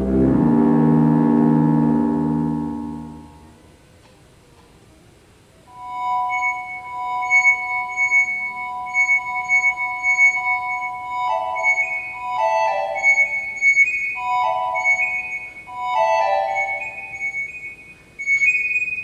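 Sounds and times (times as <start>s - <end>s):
electronic synth tones: 0.0s - 3.6s, 5.7s - 19.0s.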